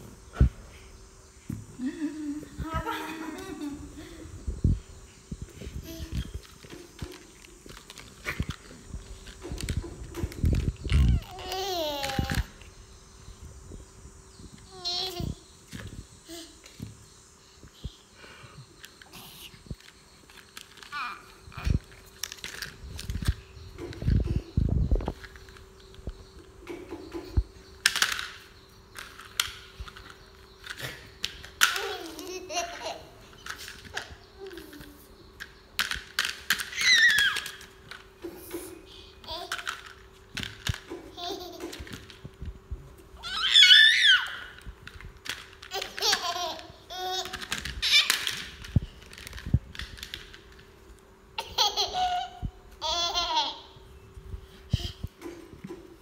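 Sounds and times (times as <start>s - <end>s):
baby laughing: 31.7s - 33.2s, 41.0s - 41.9s, 45.7s - 48.3s, 51.4s - 53.8s
baby giggling: 41.1s - 41.9s, 51.4s - 53.7s.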